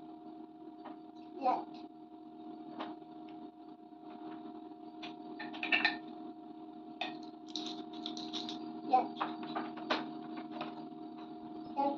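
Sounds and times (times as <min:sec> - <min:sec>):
wooden cylinders knocking and rattling: 0:07.0 - 0:08.6, 0:09.2 - 0:10.8.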